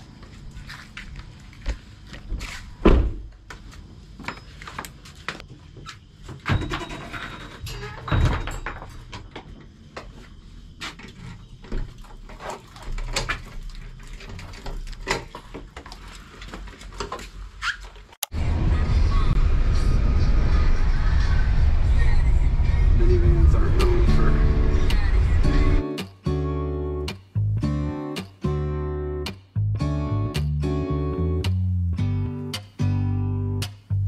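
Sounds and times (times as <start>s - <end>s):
door opening: 6.3s - 9.5s.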